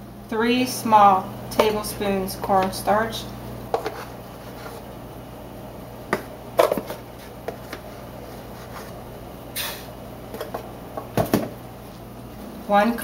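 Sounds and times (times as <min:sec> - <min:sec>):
short scraping hiss: 0:09.6 - 0:09.9.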